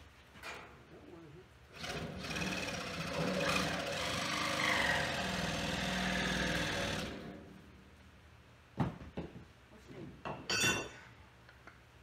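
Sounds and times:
power saw cutting wood: 0:01.8 - 0:07.4.

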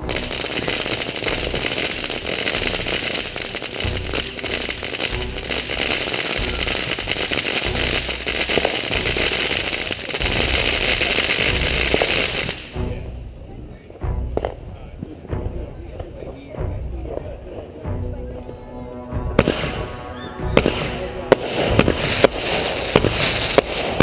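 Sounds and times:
firework crackling and hissing: 0:00.0 - 0:15.2, 0:19.4 - 0:24.0
low rumbles: 0:00.0 - 0:24.0.

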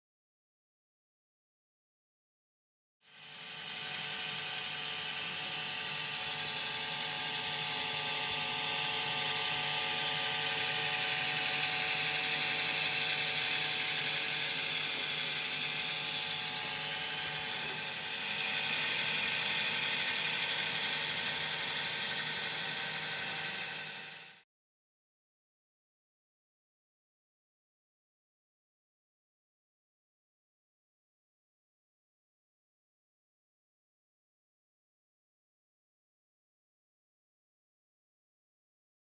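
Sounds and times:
model train motor whirring: 0:03.1 - 0:24.4.

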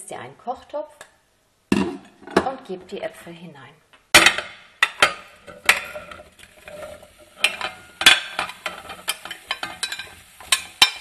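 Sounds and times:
utensil scraping plate: 0:04.8 - 0:11.0.

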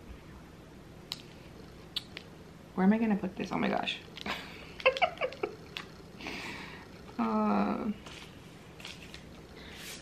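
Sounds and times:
mouth clicks: 0:01.9 - 0:02.3
woman humming: 0:05.7 - 0:08.0
soft rustle: 0:07.9 - 0:10.0.

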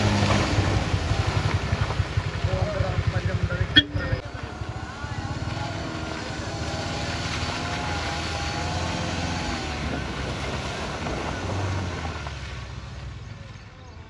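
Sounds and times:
wheels throwing muddy water: 0:00.0 - 0:03.8, 0:04.5 - 0:13.8
diesel engine droning under load: 0:03.2 - 0:13.1.

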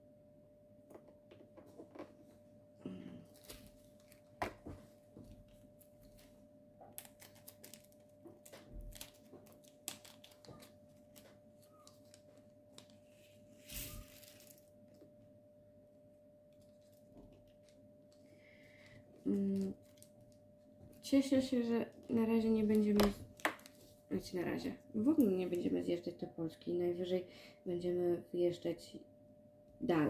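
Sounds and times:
plastic zip bag crinkling: 0:06.9 - 0:14.7.

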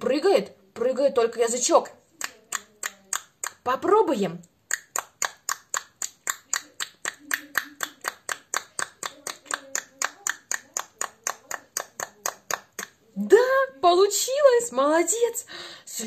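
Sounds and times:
tongue clicking: 0:02.2 - 0:03.6, 0:04.4 - 0:13.0.

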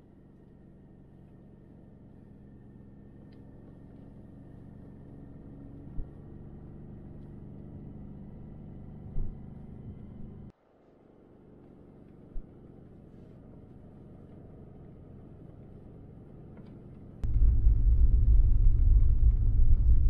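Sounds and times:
truck engine droning: 0:17.2 - 0:20.0.

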